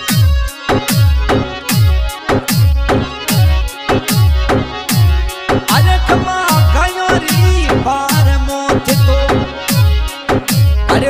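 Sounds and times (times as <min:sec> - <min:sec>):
sliding melody line: 0:00.0 - 0:11.0.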